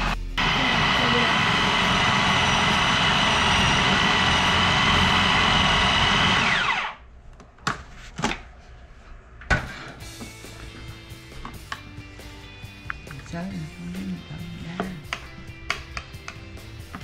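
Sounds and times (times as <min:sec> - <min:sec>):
food processor motor whine: 0:00.0 - 0:07.0.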